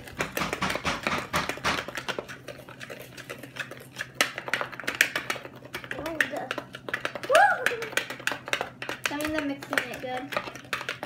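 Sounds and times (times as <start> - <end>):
utensil scraping pot: 0.0 - 11.0
knocks on pot: 0.2 - 1.9.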